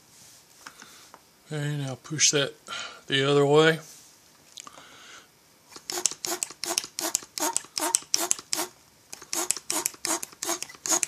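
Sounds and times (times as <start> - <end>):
hand pump strokes: 5.7 - 11.0.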